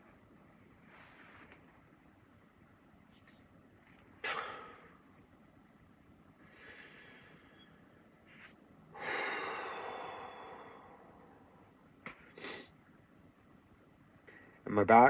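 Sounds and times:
man breathing heavily: 0:04.2 - 0:05.0, 0:06.4 - 0:07.8, 0:08.9 - 0:12.7.

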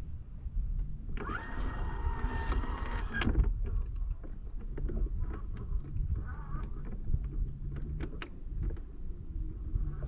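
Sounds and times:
electric trolling motor whining: 0:01.1 - 0:03.4.

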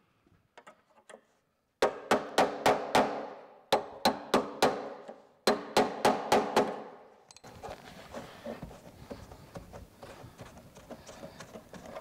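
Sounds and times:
hammer striking chisel on metal: 0:01.8 - 0:07.5.

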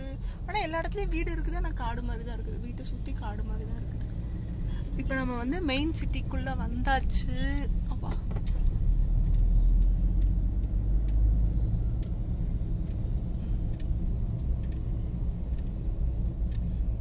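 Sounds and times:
car engine and tyres rumbling: 0:00.0 - 0:17.0
faint clicks: 0:08.2 - 0:16.9.

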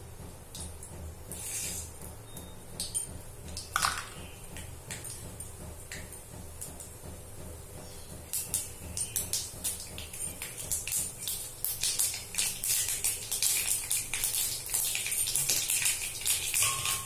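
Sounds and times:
oil crackling and spluttering: 0:07.9 - 0:17.0.

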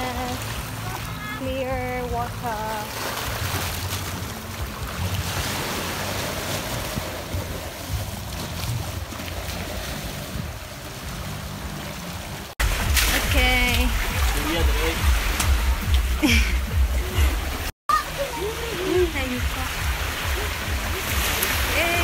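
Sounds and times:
waves washing over rocks: 0:00.0 - 0:22.0
wind rumbling on microphone: 0:03.1 - 0:17.7.

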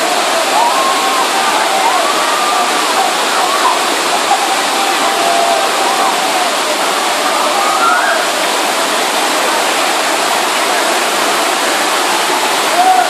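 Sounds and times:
faint voices: 0:00.0 - 0:13.0
waterfall rushing: 0:00.0 - 0:13.0.

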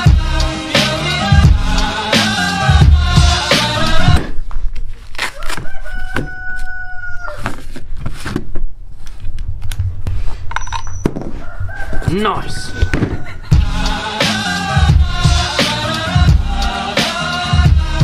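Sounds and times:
rooster crowing: 0:05.3 - 0:07.6, 0:11.3 - 0:13.6.

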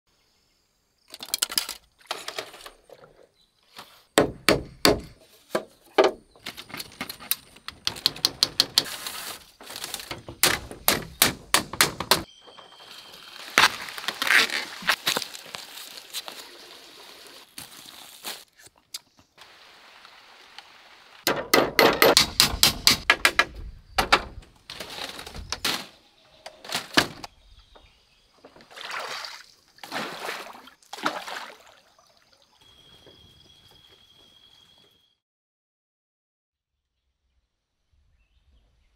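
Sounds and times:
sharp knocks and thuds: 0:04.2 - 0:06.2, 0:10.0 - 0:12.3, 0:21.3 - 0:24.5.

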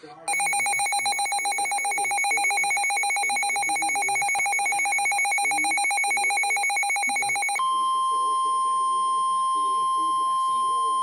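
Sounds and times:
weather radio pulsing alert beep: 0:00.3 - 0:07.7.

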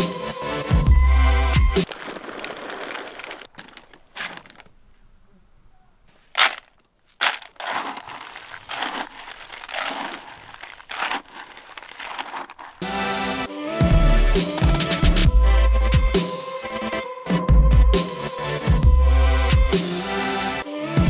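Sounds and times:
pellets rustling and scraping: 0:01.7 - 0:05.0, 0:06.1 - 0:13.5, 0:14.4 - 0:15.2
seeds poured into bucket: 0:01.8 - 0:04.7, 0:06.4 - 0:13.5
plastic bag crinkling: 0:01.8 - 0:05.0, 0:06.1 - 0:12.9.

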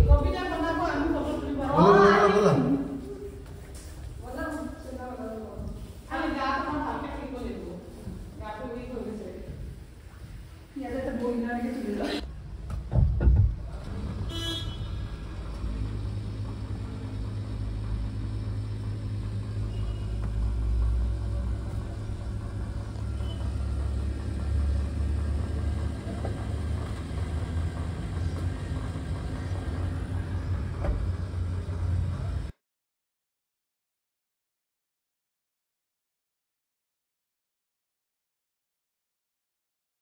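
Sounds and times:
vehicle engine idling: 0:12.2 - 0:32.5
loud knocks: 0:12.6 - 0:14.3.

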